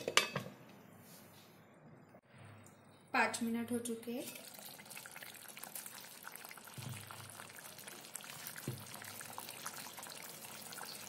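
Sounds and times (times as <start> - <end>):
curry bubbling at a simmer: 4.3 - 11.0.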